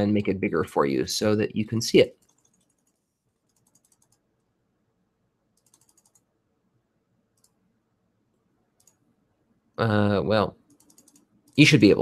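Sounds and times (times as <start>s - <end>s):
computer keyboard clicks: 2.2s - 4.2s, 5.6s - 6.2s, 7.4s - 7.6s, 8.8s - 9.0s, 10.7s - 11.7s.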